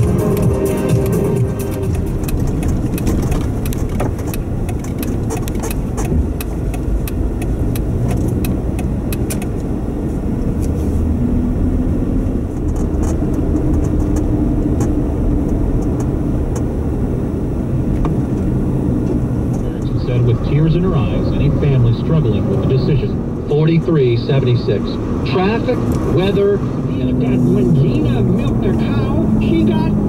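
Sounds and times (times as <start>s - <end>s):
engine and tyres rumbling: 0.0s - 30.0s
clicks and crackles: 1.8s - 9.6s.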